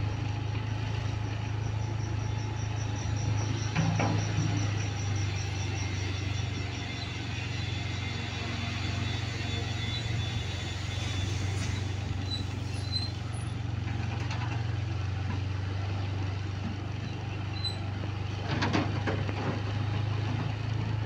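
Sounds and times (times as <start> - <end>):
motorcycle engine running: 0.0 - 18.6.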